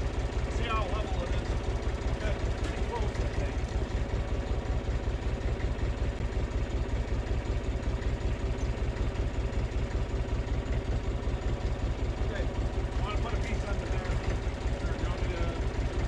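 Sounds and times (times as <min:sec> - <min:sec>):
tractor engine idling: 0:00.0 - 0:16.0.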